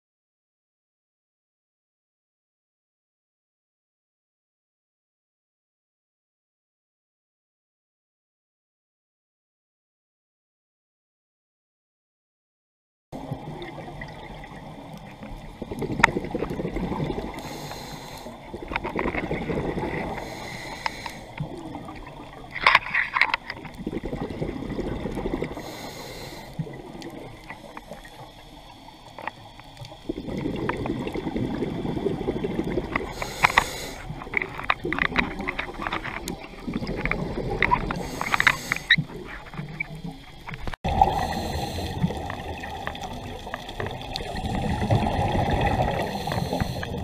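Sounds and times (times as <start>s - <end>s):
exhaled bubbles bubbling: 13.2s - 47.0s
regulator hiss on inhalation: 17.2s - 18.6s, 20.0s - 21.5s, 25.4s - 26.8s, 32.9s - 34.2s, 37.8s - 39.1s, 41.0s - 42.3s, 45.8s - 47.0s.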